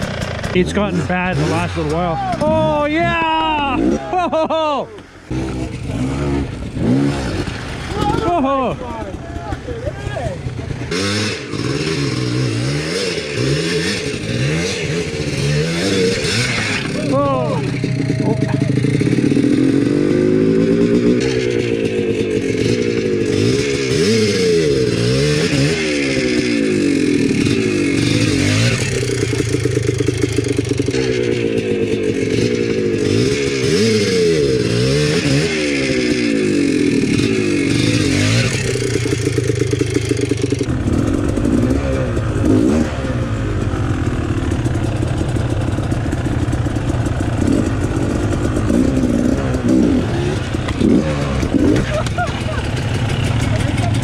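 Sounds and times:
dirt bike engine revving: 0:00.0 - 0:54.0
dirt bike engine running steadily: 0:00.0 - 0:54.0.

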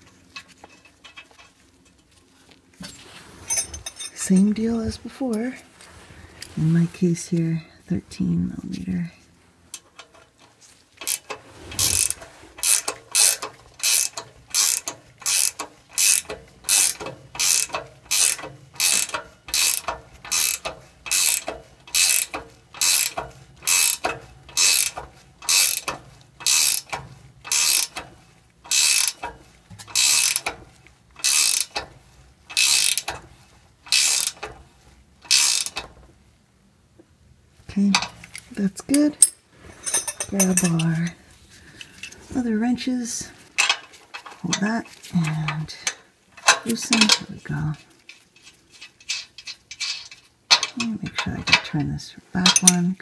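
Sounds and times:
ratcheting wrench clicking: 0:09.7 - 0:30.6, 0:31.2 - 0:31.9, 0:32.5 - 0:34.6, 0:35.2 - 0:35.9, 0:45.8 - 0:47.2, 0:48.1 - 0:51.7.

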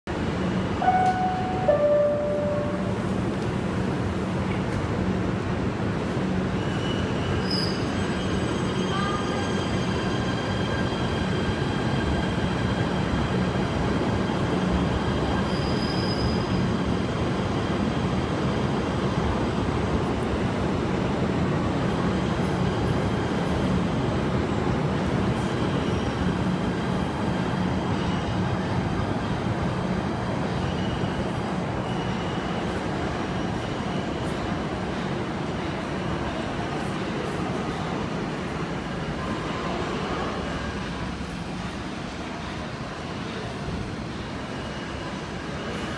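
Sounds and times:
subway train running past: 0:00.1 - 0:45.9
high-pitched tones: 0:00.8 - 0:03.1.

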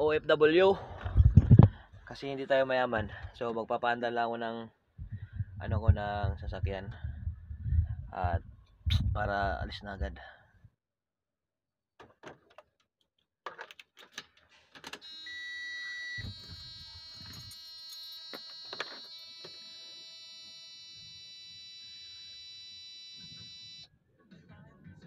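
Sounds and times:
dashboard warning buzzer: 0:15.0 - 0:23.9.

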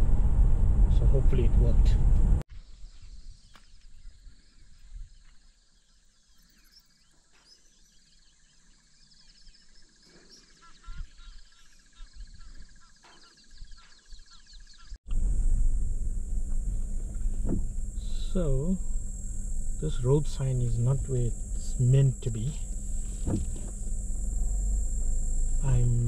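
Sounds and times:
low rumble: 0:00.0 - 0:02.4, 0:15.1 - 0:26.0
wild birds chirping: 0:02.6 - 0:15.0, 0:15.8 - 0:26.0
insect buzz: 0:02.6 - 0:26.0
high-pitched insect drone: 0:15.1 - 0:26.0.

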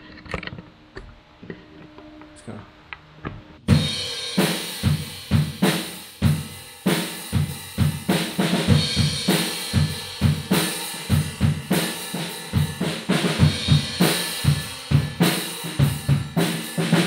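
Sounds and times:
kick and snare beat: 0:03.7 - 0:17.0
washing cymbals: 0:03.7 - 0:17.0.

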